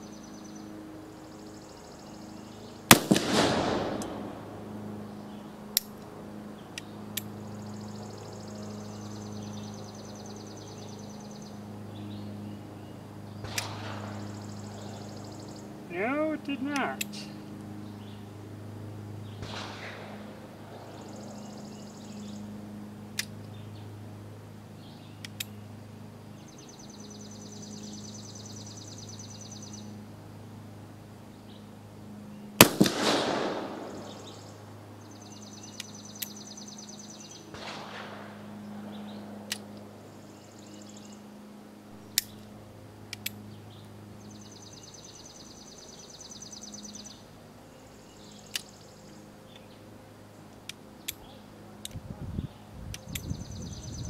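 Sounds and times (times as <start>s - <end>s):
loud gunshot with echo: 2.9s - 4.4s, 19.4s - 20.2s, 32.6s - 34.2s, 37.6s - 38.4s.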